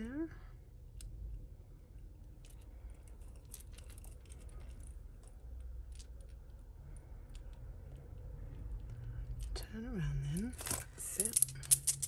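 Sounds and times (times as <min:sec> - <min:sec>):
metal chain jewellery clinking: 0:10.3 - 0:12.0.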